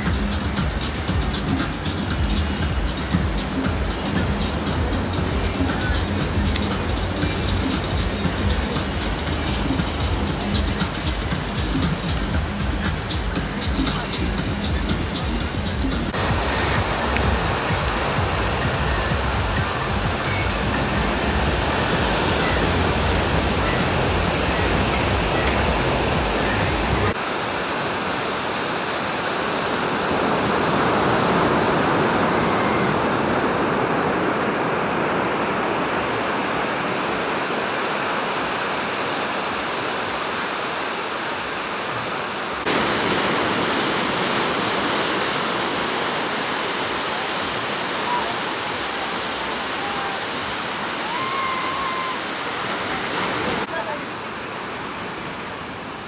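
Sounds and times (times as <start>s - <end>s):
sea surf washing on beach: 0.0s - 56.0s
low rumble: 15.7s - 27.2s.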